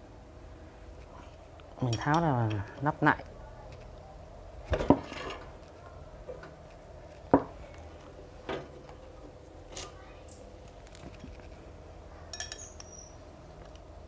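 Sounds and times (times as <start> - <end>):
faint steady hum: 0.0 - 14.0
metal clinking and knocking: 12.3 - 13.0.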